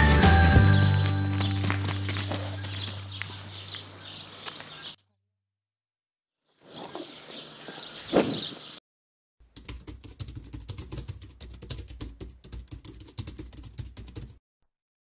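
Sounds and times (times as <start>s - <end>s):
outdoor sound: 0.0s - 5.7s, 6.3s - 8.8s.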